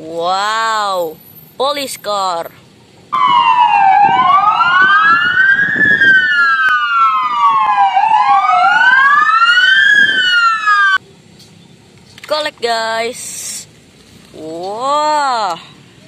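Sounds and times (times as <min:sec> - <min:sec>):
police siren wailing: 0:03.2 - 0:11.0.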